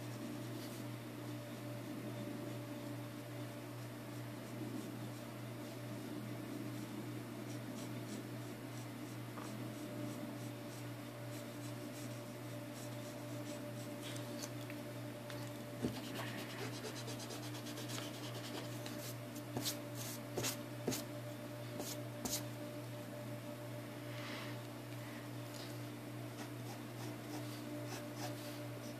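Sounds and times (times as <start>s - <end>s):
steady low hum: 0.0s - 28.9s
pencil scratching on paper: 15.8s - 21.0s, 26.4s - 28.9s.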